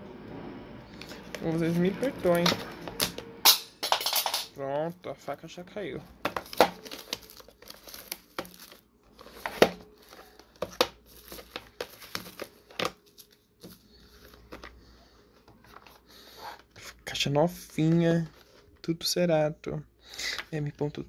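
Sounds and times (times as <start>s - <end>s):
plastic shrink-wrap tearing: 6.4s - 13.4s.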